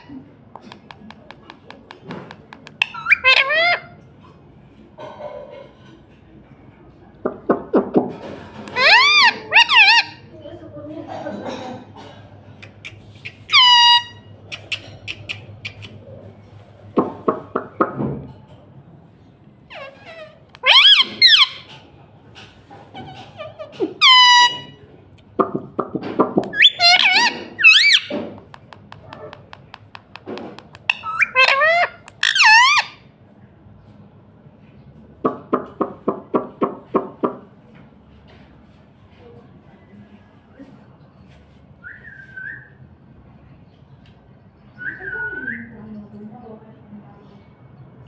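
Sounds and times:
parakeet shrill call: 0:02.8 - 0:03.9, 0:08.7 - 0:10.2, 0:13.4 - 0:15.3, 0:20.6 - 0:21.7, 0:24.0 - 0:24.8, 0:26.6 - 0:28.1, 0:30.9 - 0:33.0
parakeet short calls: 0:12.8 - 0:15.9, 0:20.6 - 0:21.6.

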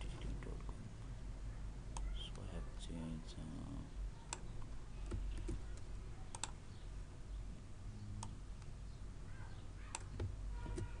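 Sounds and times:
low steady hum: 0:00.0 - 0:11.0
computer keyboard keys clicking: 0:05.1 - 0:06.6.

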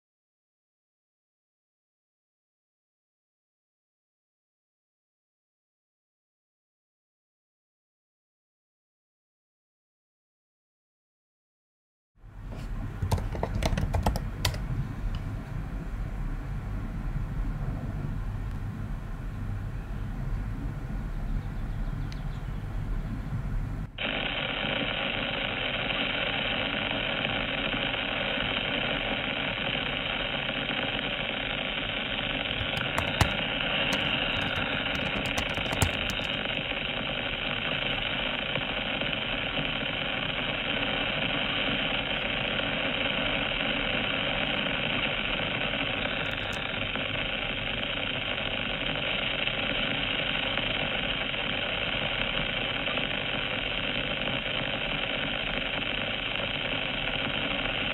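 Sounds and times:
keyboard typing: 0:13.0 - 0:14.7, 0:32.6 - 0:36.5, 0:46.2 - 0:46.6
plane motor and propeller drone: 0:29.6 - 0:37.6
mouse clicks: 0:32.6 - 0:36.4.

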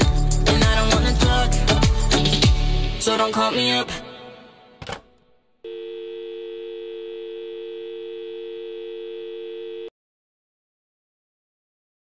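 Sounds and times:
telephone dial tone: 0:05.7 - 0:09.9.

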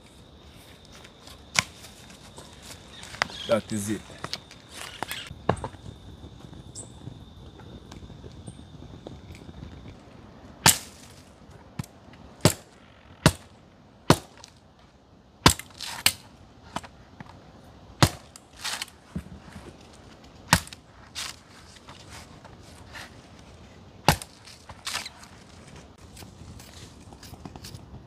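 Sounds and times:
sharp cracks or chops: 0:20.5 - 0:21.4.

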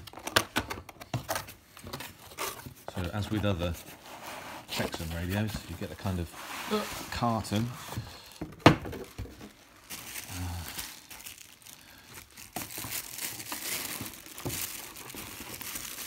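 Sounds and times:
plastic bag crinkling: 0:08.9 - 0:16.0.

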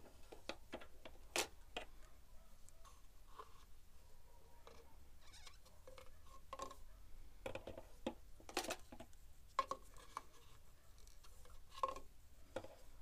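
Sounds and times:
plastic syringe clicks and rustles: 0:07.4 - 0:12.8.

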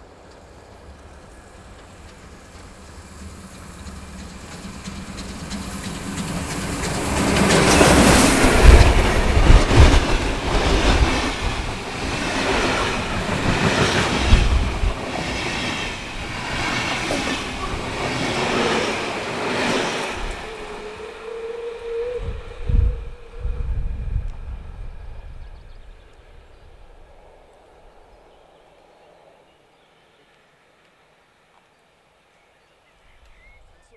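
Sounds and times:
train wheels clattering: 0:00.0 - 0:20.5
steam locomotive passing: 0:00.0 - 0:29.4.

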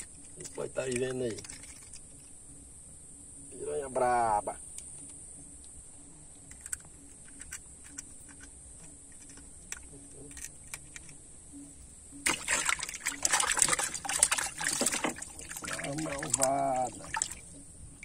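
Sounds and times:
fish flapping and splashing: 0:12.2 - 0:18.0.

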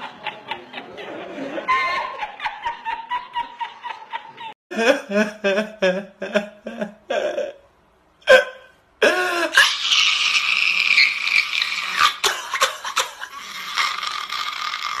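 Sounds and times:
man sobbing and wailing: 0:04.7 - 0:10.7.

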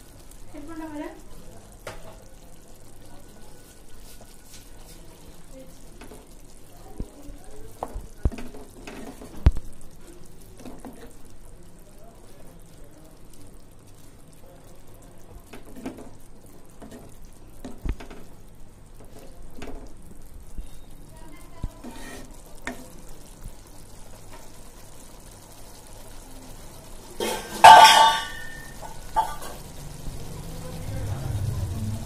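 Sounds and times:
curry simmering in a pan: 0:00.0 - 0:32.0
wooden spatula scraping a pan: 0:21.7 - 0:22.8.

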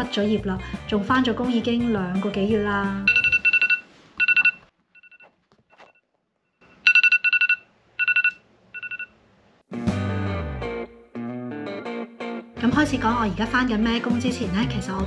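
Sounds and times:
phone alert beeps: 0:03.0 - 0:05.3, 0:06.7 - 0:09.1.

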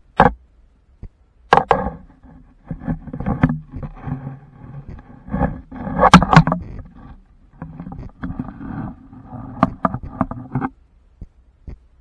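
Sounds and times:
knocks and bumps: 0:01.5 - 0:10.7.

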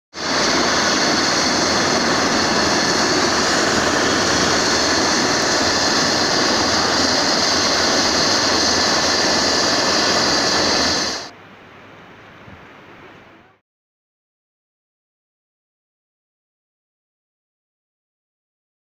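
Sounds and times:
helicopter turbine and rotor whine: 0:00.1 - 0:11.3.

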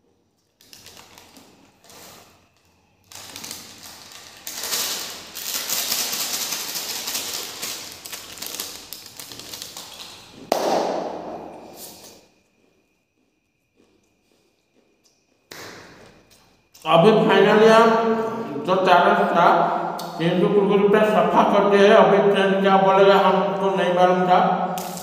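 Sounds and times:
plastic snack packet crinkling: 0:00.4 - 0:02.3, 0:03.0 - 0:10.4, 0:24.8 - 0:25.0.

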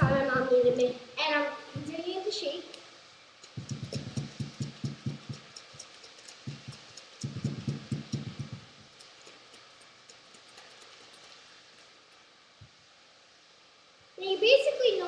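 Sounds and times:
liquid sloshing in shaker cup: 0:03.4 - 0:11.9.

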